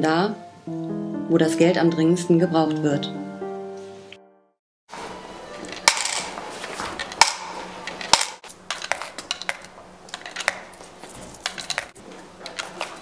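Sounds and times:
coins clinking into plastic box: 11.3s - 13.0s.

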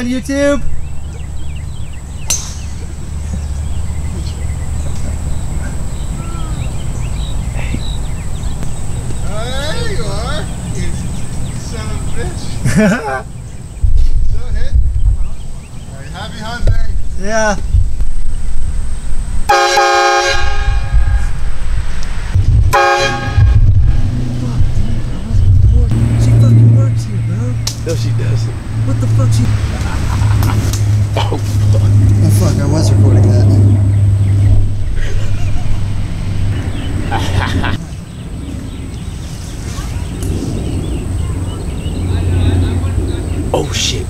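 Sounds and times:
golf club hitting ball: 2.2s - 2.9s
low rumble: 13.4s - 19.5s, 20.4s - 44.0s
train horn blasts: 19.5s - 21.4s, 22.7s - 24.3s.

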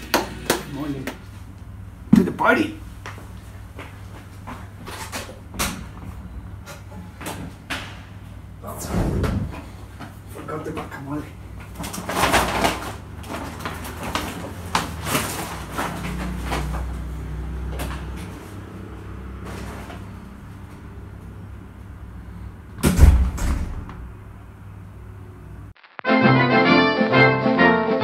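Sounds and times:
heavy door closing with a thud: 8.8s - 9.8s, 22.8s - 24.2s.

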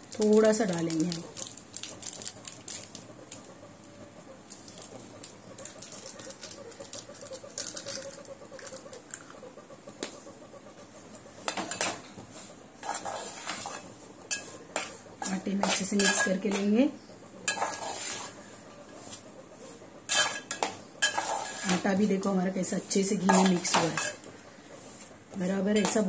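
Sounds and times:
metal spatula scraping a pan: 12.8s - 19.2s, 20.1s - 22.1s, 23.0s - 24.2s.

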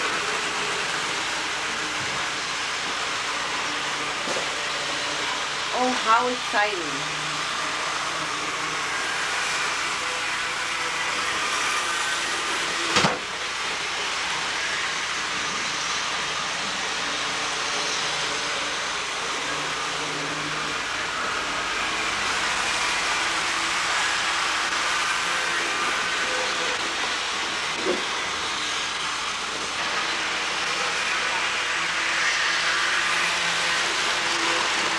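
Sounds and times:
model trains whirring: 0.0s - 34.9s.

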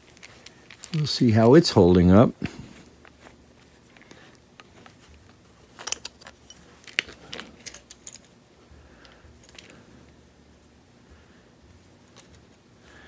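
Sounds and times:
metallic clicks of drill parts: 5.8s - 8.3s.

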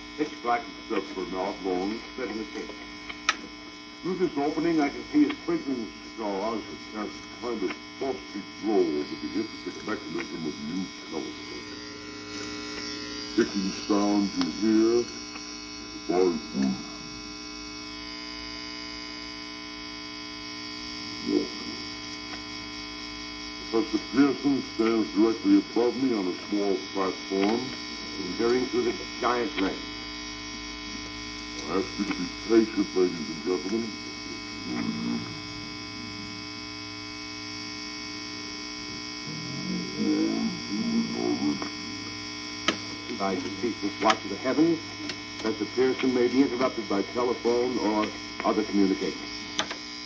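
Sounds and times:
recorded voice from record: 0.0s - 11.8s, 12.8s - 17.2s, 23.6s - 30.0s, 31.6s - 35.6s, 39.3s - 42.2s, 43.0s - 49.7s
electrical hum: 0.0s - 50.0s.

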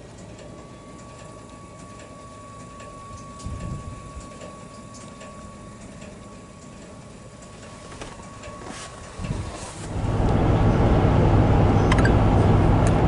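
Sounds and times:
fuel pump whine: 0.0s - 13.0s.

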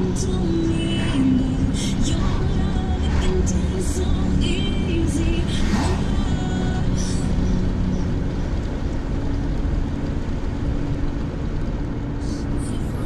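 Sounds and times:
road and engine rumble in car: 0.0s - 13.0s
passing car whoosh: 0.6s - 8.6s.

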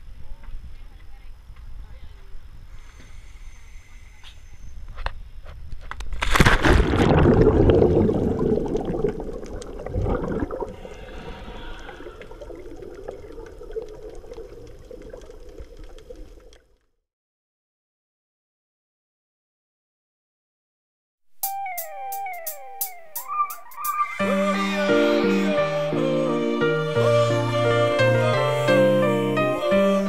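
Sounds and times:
diver splashing into water: 6.2s - 12.4s
water bubbling underwater: 6.4s - 16.7s.

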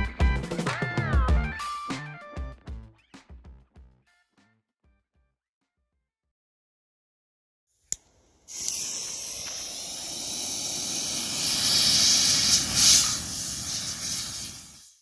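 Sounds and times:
propellant burning with hiss: 8.0s - 15.0s.

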